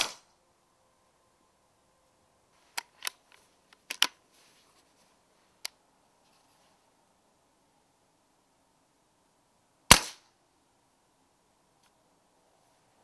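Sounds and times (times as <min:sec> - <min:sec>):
air rifle lever clicks: 0:03.8 - 0:04.2.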